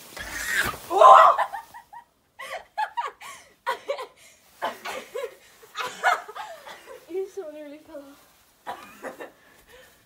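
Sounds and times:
girls laughing and giggling: 0.2s - 7.4s, 8.6s - 9.9s.

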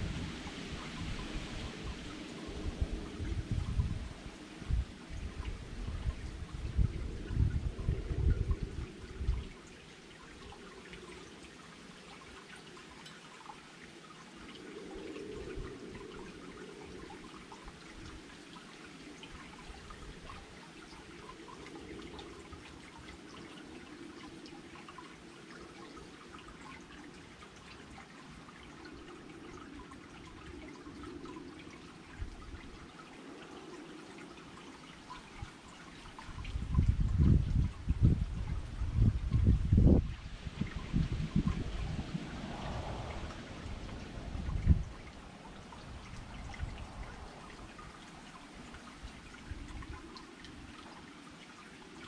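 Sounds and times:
fountain trickling: 0.0s - 52.0s
wind rumble on microphone: 0.0s - 52.0s.

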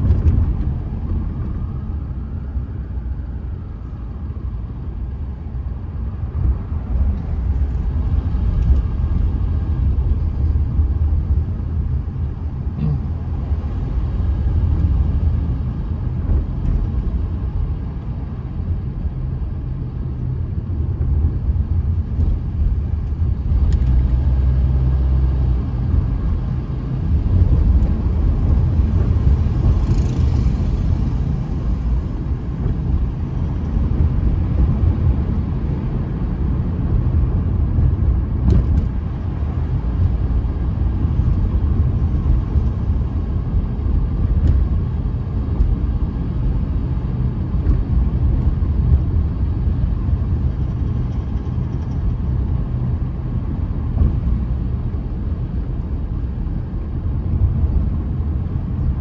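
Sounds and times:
car tyres and engine rumble: 0.0s - 59.0s.

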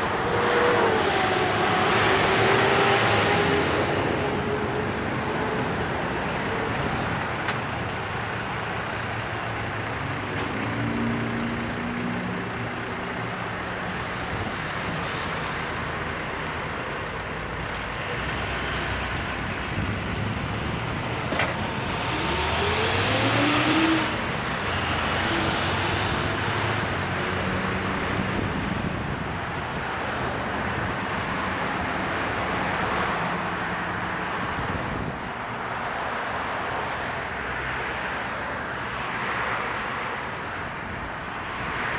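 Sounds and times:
road traffic: 0.0s - 41.9s
engine revving up: 21.8s - 26.0s.

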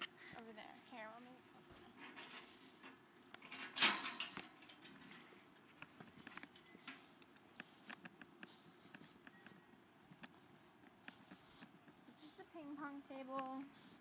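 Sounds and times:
faint clicks and knocks: 1.7s - 14.0s
laptop handling rustle: 3.3s - 14.0s.

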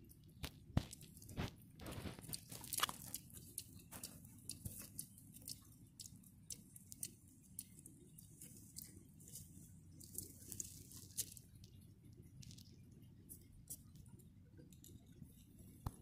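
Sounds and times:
hedgehogs foraging in dry leaves: 0.4s - 14.1s.

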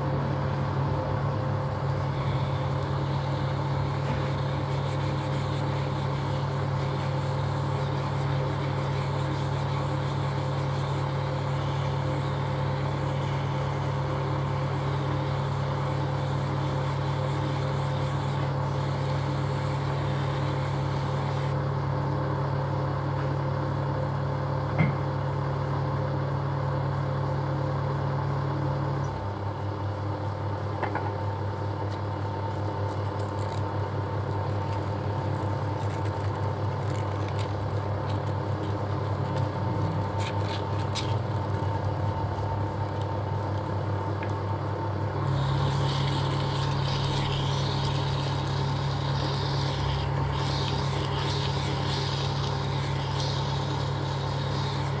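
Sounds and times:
metal lathe humming: 45.1s - 55.0s.

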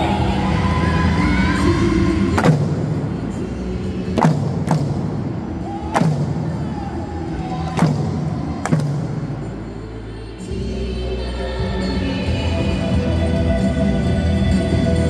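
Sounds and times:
hand drums struck with sticks: 7.8s - 9.4s.

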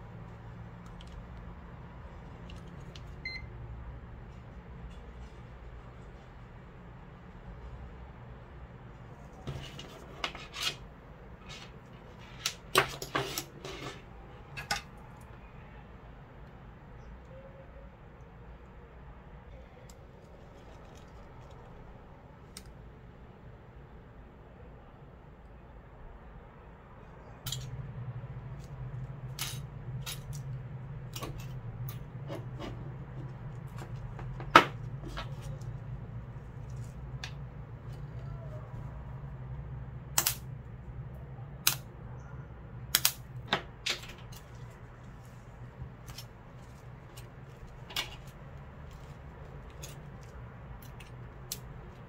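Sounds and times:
loud sharp snap: 40.2s - 40.4s, 42.9s - 43.3s.

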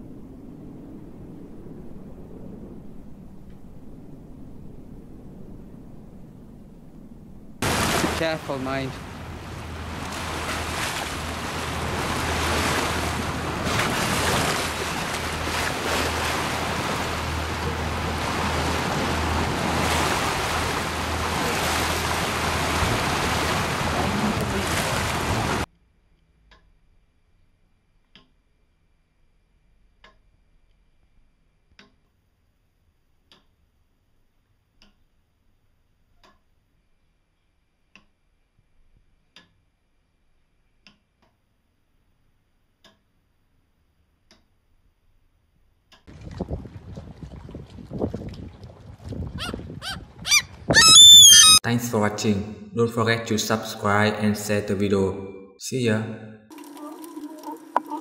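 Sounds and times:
wind: 0.0s - 26.6s, 45.8s - 53.3s
low engine hum: 1.0s - 25.7s
rushing water: 7.6s - 25.7s, 46.1s - 51.6s, 56.5s - 58.0s.

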